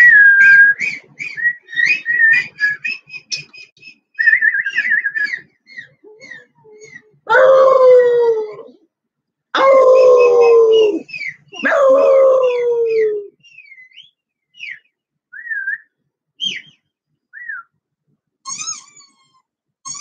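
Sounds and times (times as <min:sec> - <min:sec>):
puppy whining squeaks: 0:04.7 - 0:07.2, 0:18.5 - 0:20.0
puppy howling: 0:06.0 - 0:08.8, 0:09.6 - 0:13.3.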